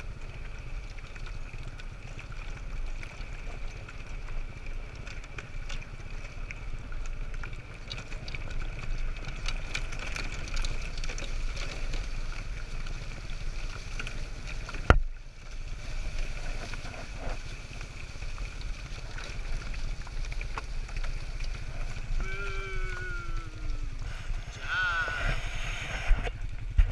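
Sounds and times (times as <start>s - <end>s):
small rattles: 0.0s - 26.8s
sled rig rumbling over trail: 0.0s - 26.9s
wind on microphone: 21.7s - 26.9s.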